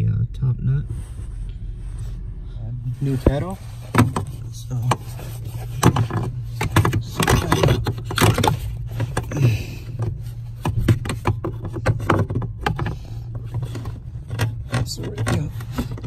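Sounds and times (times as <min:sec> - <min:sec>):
steady low hum: 0:00.0 - 0:16.0
plastic clicks and knocks: 0:10.0 - 0:16.0.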